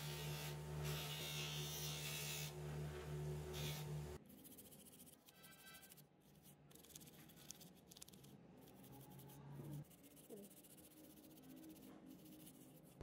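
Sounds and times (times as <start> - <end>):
toothbrush scrubbing circuit board: 4.2 - 13.0.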